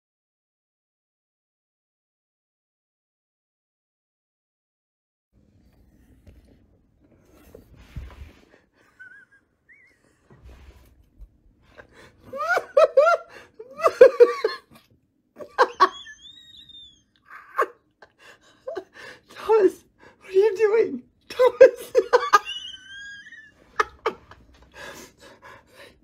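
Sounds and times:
person laughing hard: 12.2s - 18.9s, 21.4s - 25.1s.

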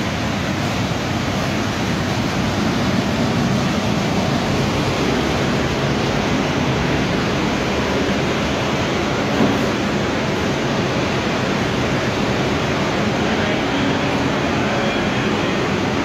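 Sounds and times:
drying blowers rushing air: 0.0s - 16.0s.

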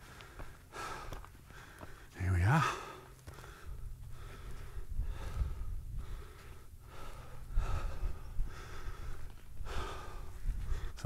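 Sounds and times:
person panting: 0.0s - 11.0s
wind rumble on microphone: 3.6s - 11.0s.

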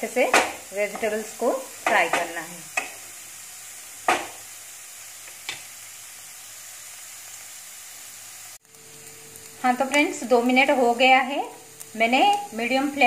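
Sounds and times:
vegetables sizzling in a pan: 0.0s - 13.0s
sharp knock: 4.1s - 4.4s.

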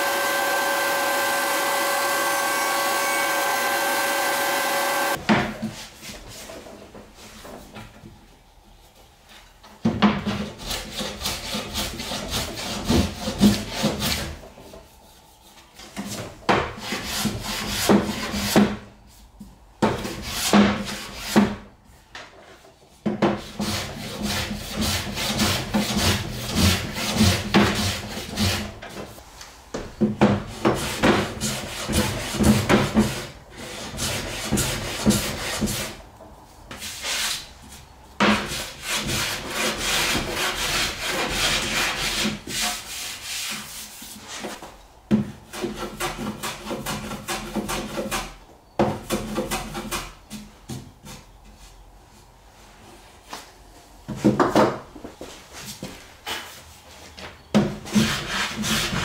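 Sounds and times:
hand plane shaving wood: 38.3s - 44.5s, 57.8s - 59.0s.

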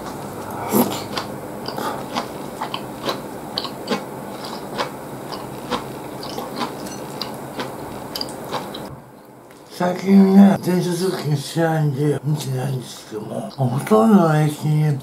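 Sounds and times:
person slurping noodles: 0.1s - 3.2s.

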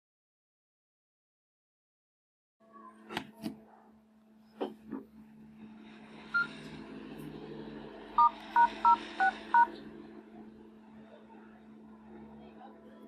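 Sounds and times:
steady low hum: 4.0s - 13.0s
phone keypad beeps: 8.2s - 9.7s.

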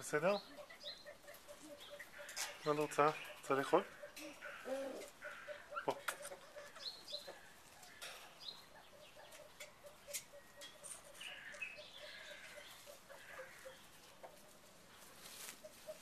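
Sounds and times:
chickens clucking softly: 0.0s - 16.0s
chicken chirps: 0.4s - 7.9s.

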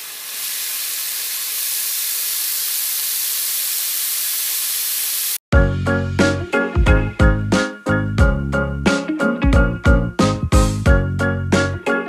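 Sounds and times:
steady hiss: 0.0s - 5.4s
music: 5.5s - 12.0s.

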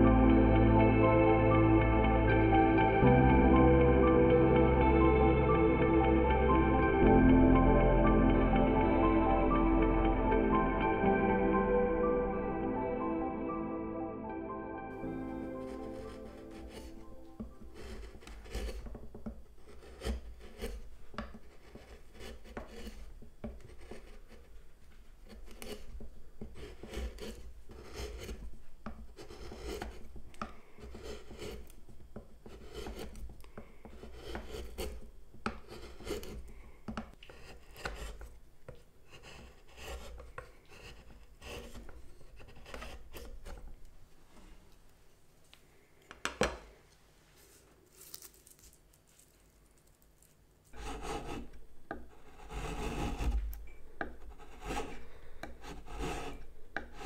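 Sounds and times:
gouge cutting wood shavings: 15.2s - 24.5s, 25.2s - 36.5s, 37.2s - 38.3s, 39.1s - 43.7s, 50.7s - 57.0s.

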